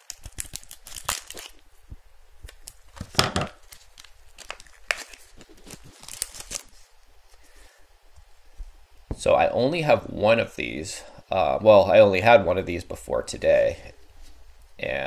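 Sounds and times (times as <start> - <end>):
packaging tearing and crinkling: 0.0 - 1.6, 2.4 - 6.9.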